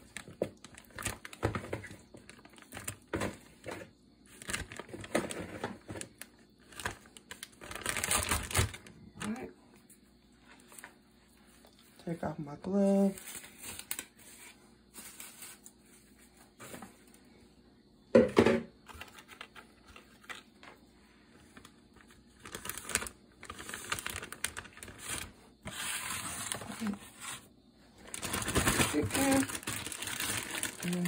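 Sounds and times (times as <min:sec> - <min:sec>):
plastic bag crinkling: 0:00.0 - 0:09.4, 0:21.5 - 0:27.0, 0:28.0 - 0:31.0.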